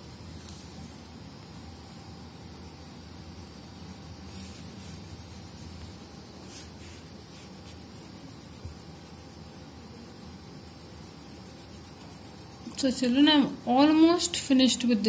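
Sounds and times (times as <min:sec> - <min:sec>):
steady background hiss: 0:00.0 - 0:15.0
colored pencil scratching on paper: 0:03.4 - 0:14.3.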